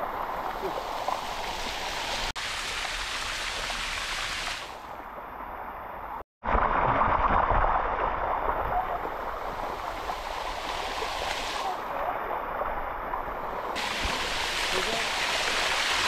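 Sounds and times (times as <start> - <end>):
water rushing down waterfall: 8.1 - 12.7, 13.4 - 16.0.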